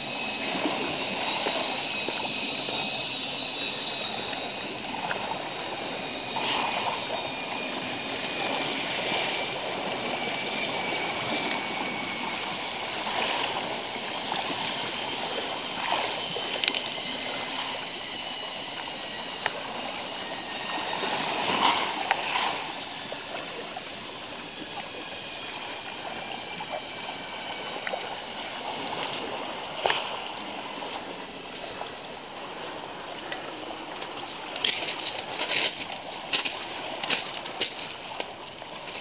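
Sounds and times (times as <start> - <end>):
waves washing over pebbles: 6.3 - 18.0, 19.4 - 24.8, 27.6 - 39.0
footsteps on pebbles: 34.6 - 39.0.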